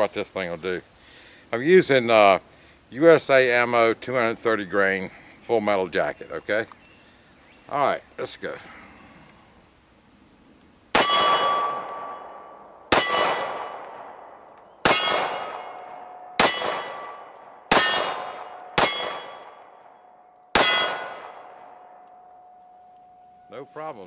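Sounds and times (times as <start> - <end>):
pistol shots: 10.9 - 22.0
steel target clanging: 11.0 - 13.8, 14.8 - 19.7, 20.5 - 21.4.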